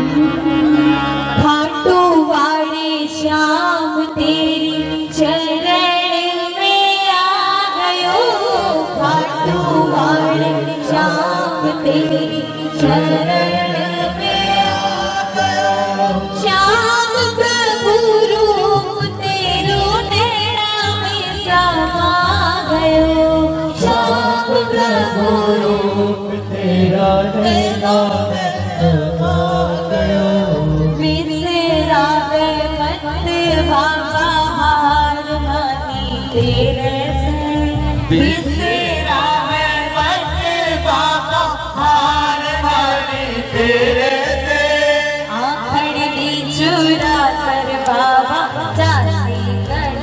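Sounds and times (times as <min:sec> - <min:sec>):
amplified instrumental accompaniment: 0:00.0 - 0:50.0
devotional singing: 0:00.0 - 0:50.0.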